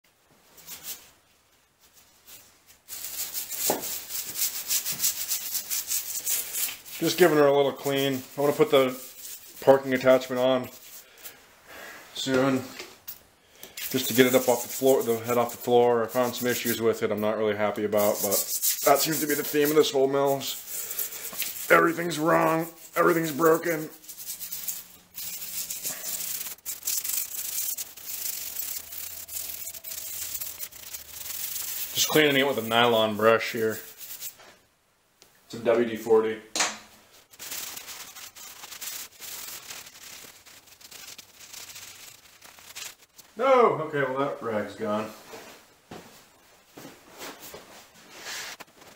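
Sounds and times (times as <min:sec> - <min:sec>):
brush scrubbing metal: 0:02.3 - 0:11.4, 0:13.7 - 0:17.0, 0:17.7 - 0:34.4, 0:37.2 - 0:43.4.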